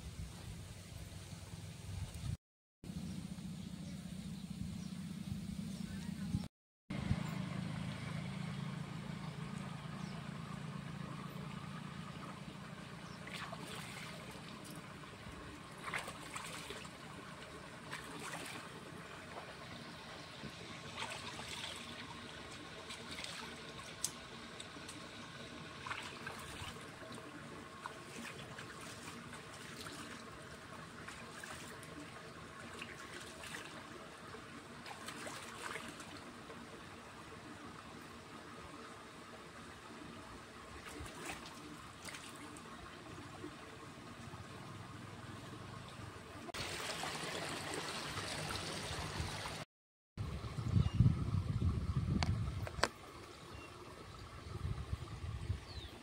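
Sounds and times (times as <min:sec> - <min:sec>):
low steady hum: 0:00.0 - 0:49.5, 0:50.2 - 0:56.0
water trickling: 0:11.4 - 0:49.6.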